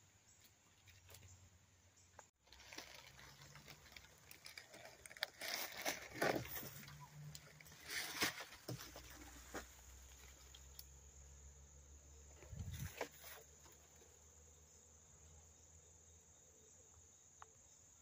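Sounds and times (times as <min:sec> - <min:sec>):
rustle: 0:00.0 - 0:11.4, 0:12.3 - 0:14.8
insects chirring: 0:00.0 - 0:18.0.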